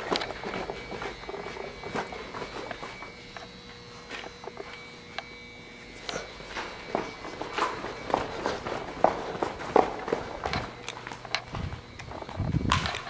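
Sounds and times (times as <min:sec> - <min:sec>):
footsteps on hard floor: 0:00.0 - 0:13.0.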